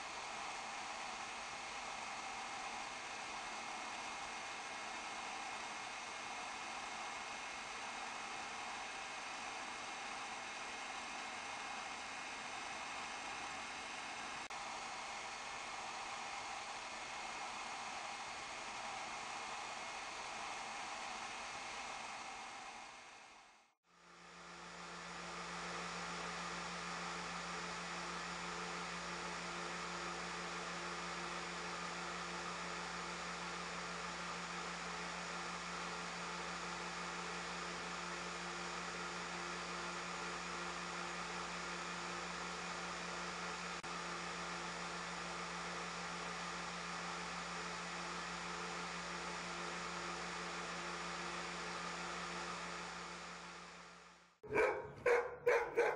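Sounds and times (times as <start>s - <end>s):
machine whir with low hum: 0.0s - 55.9s
dog barking: 54.4s - 55.9s.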